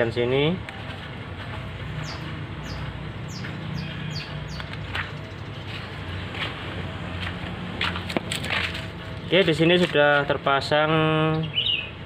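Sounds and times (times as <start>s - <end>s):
small bird chirping: 2.0s - 6.0s, 11.4s - 12.0s.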